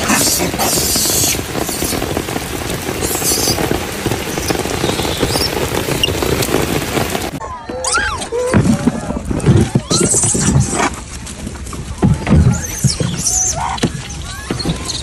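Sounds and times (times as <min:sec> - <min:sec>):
rain pattering on pavement: 0:00.0 - 0:07.4, 0:10.9 - 0:15.0.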